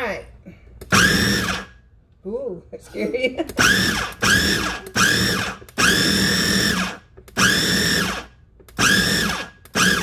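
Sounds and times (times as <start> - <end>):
food processor pulsing: 0.9 - 1.8, 3.6 - 10.0.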